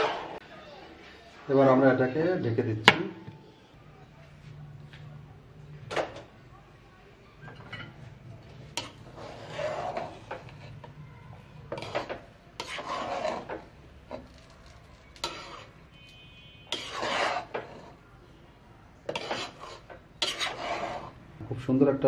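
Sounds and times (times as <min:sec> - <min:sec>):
spatula scraping rice in pot: 0:08.5 - 0:11.0, 0:11.7 - 0:18.0, 0:19.1 - 0:21.2.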